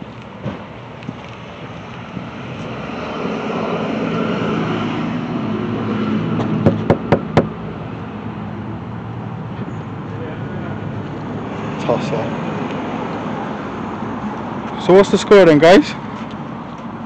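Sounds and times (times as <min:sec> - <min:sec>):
vehicle engine and road noise: 0:00.0 - 0:17.0
sharp knocks: 0:06.4 - 0:07.6.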